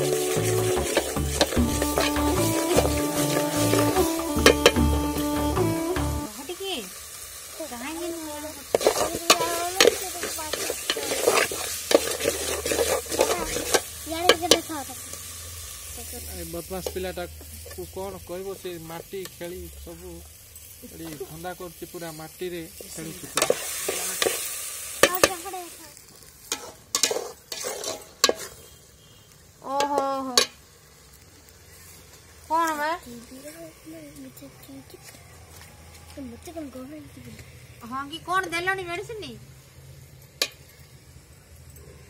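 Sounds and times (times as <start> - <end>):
metal spatula scraping a pot: 0.0 - 4.9, 8.7 - 14.6, 26.5 - 28.8
oil sizzling: 0.0 - 42.0.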